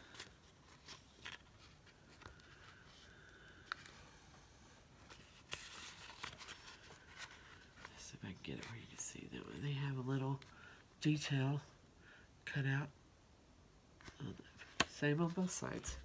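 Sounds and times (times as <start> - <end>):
paper sticker sheet rustling: 5.0 - 8.8.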